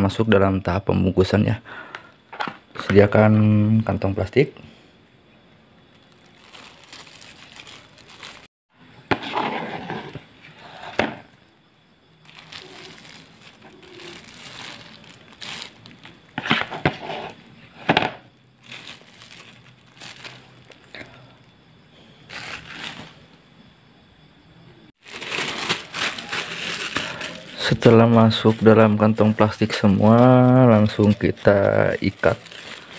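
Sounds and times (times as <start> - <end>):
plastic bag crinkling: 5.9 - 8.5, 12.2 - 17.4, 18.6 - 21.1, 22.3 - 23.3, 25.0 - 32.9
spoon scraping plastic basin: 9.1 - 11.2.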